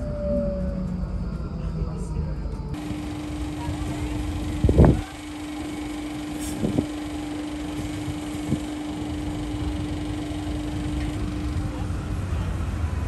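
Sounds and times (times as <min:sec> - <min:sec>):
low hum: 0:02.8 - 0:12.3
traffic rumble: 0:02.8 - 0:13.0.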